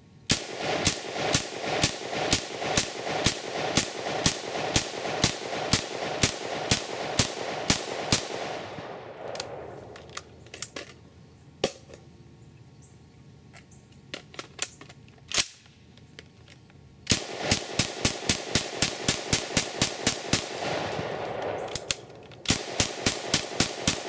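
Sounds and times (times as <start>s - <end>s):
rifle firing rapid shots: 0.3s - 10.0s, 17.1s - 24.0s
rifle metallic clicks: 0.3s - 11.0s, 13.5s - 24.0s.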